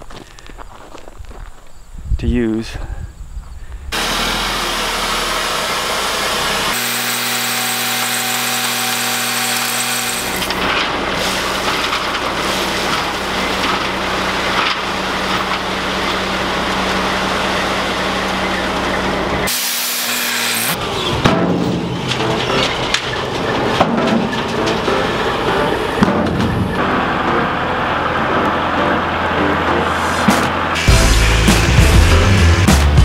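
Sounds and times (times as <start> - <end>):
diesel truck engine running: 4.0 - 9.2, 10.2 - 19.5, 20.7 - 33.0
gravel sliding and pouring: 10.6 - 16.3.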